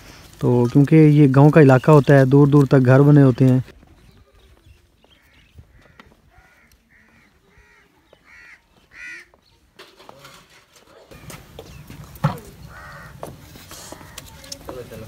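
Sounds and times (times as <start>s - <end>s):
crows cawing: 5.0s - 9.4s, 12.4s - 14.7s.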